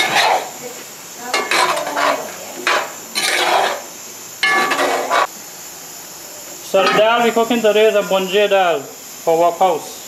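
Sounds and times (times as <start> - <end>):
metal utensil scraping a pot: 0.0 - 0.5, 1.4 - 5.3.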